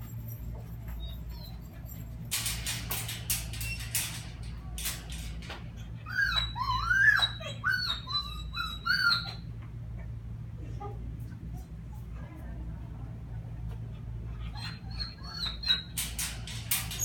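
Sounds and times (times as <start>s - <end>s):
dog whining: 1.0s - 2.0s, 5.0s - 9.6s, 14.2s - 17.0s
sharp clicks and rattles: 1.8s - 5.8s, 16.0s - 17.0s.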